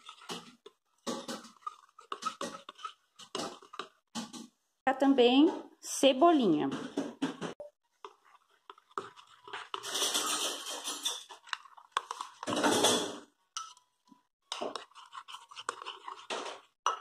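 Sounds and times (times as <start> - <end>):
spoon stirring thick sauce: 0.0 - 4.4, 7.9 - 17.0.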